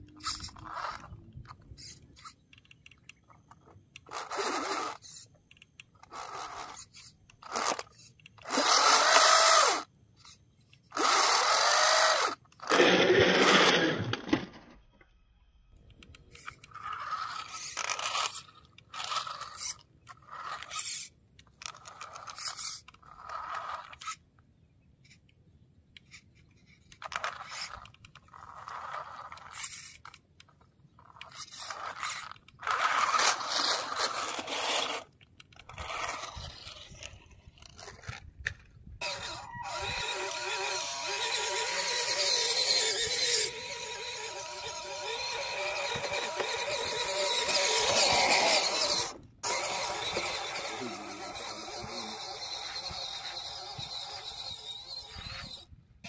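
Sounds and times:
rc car motors whining: 0.1s - 14.7s, 15.8s - 24.2s, 26.0s - 56.0s
tyres scraping over dirt: 31.0s - 55.7s.

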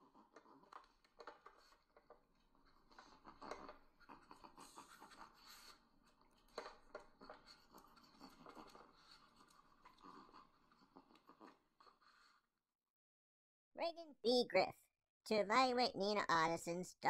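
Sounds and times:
faint scratching and rustling: 0.0s - 12.4s.

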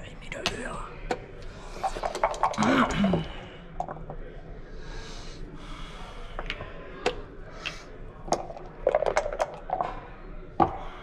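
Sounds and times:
plastic checkers clacking on board: 1.8s - 2.7s, 6.4s - 10.0s.

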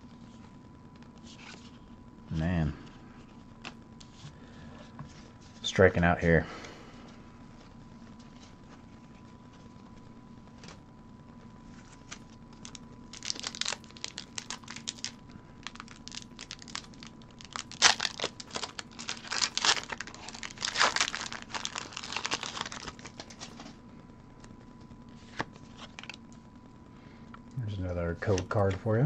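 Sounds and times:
foil wrapper tearing and crinkling: 11.8s - 23.7s, 25.2s - 26.2s.

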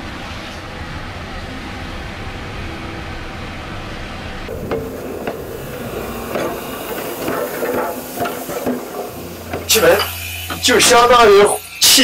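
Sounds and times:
steady low rumble: 0.0s - 11.8s
metallic clanks and knocks: 4.5s - 11.4s
steam hissing: 4.5s - 12.0s.

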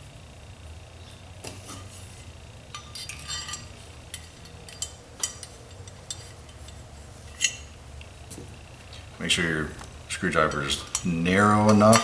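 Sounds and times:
small metal parts clinking: 2.7s - 7.7s.

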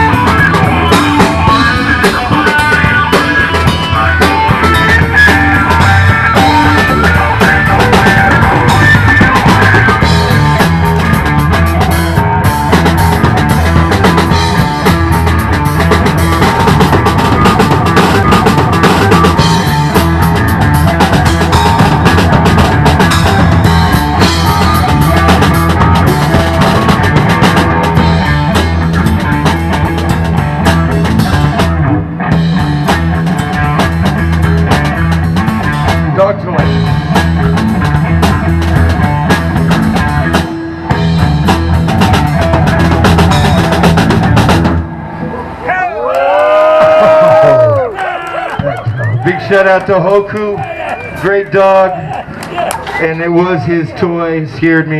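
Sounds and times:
funk rock band playing: 0.0s - 45.8s, 46.4s - 54.9s.

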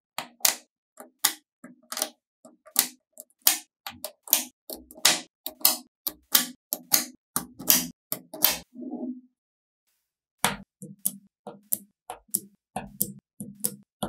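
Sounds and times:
magnetic balls clicking: 10.4s - 13.9s.

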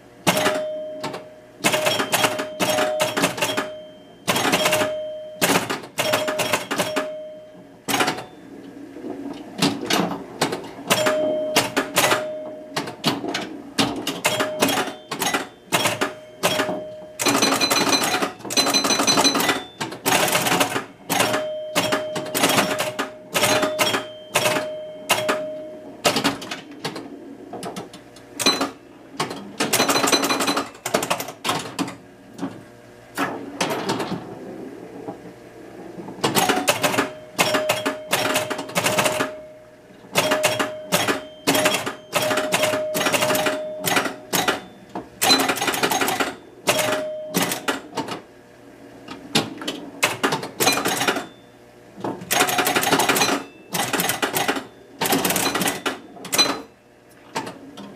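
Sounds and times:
score reels and relays clacking: 0.0s - 48.4s, 49.0s - 57.9s
pinball pop bumpers firing: 0.2s - 34.3s, 36.0s - 48.3s, 49.1s - 51.4s, 52.0s - 57.9s
held ringing tone: 0.3s - 8.8s, 10.7s - 13.0s, 14.1s - 26.5s, 28.4s - 29.0s, 29.6s - 30.9s, 36.4s - 47.9s.

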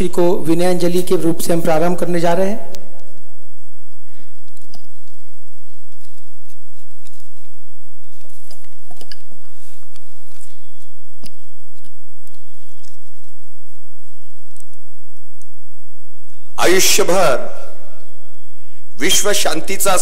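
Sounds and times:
low electrical hum: 0.0s - 20.0s
papers rustling: 4.4s - 13.5s.

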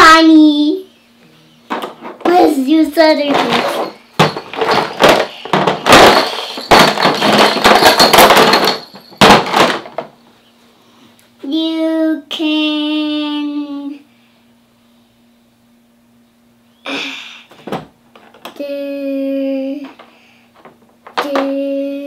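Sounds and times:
plastic toys clattering: 1.7s - 10.2s, 19.8s - 21.6s.

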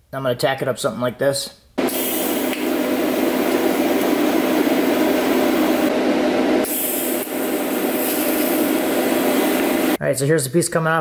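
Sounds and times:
welding arc hissing and humming: 1.8s - 10.0s.

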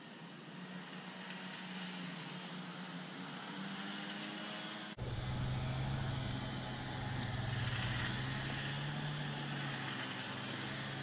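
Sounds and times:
engine humming: 5.0s - 11.0s.

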